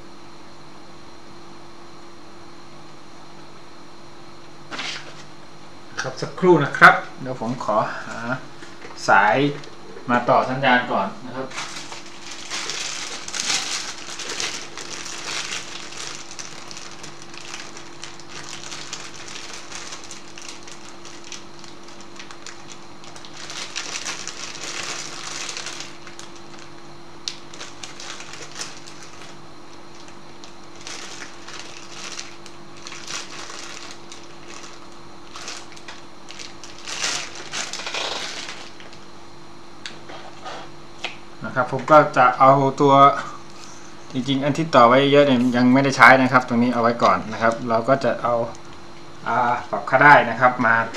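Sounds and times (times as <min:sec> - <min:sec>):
steady low hum: 0:00.0 - 0:50.9
rustling and crinkling: 0:11.4 - 0:39.1.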